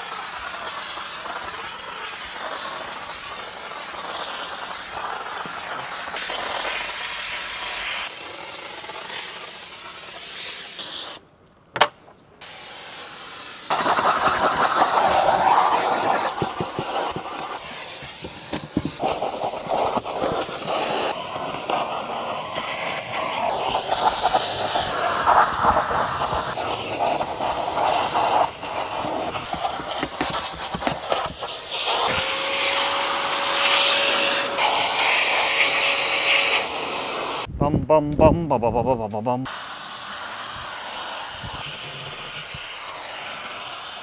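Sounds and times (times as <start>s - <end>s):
steam cleaner hissing: 0.0s - 11.2s, 12.4s - 37.5s, 39.4s - 44.0s.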